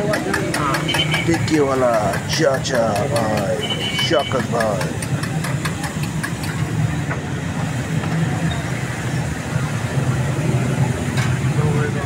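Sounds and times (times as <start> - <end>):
sharp clicks: 0.0 - 6.7.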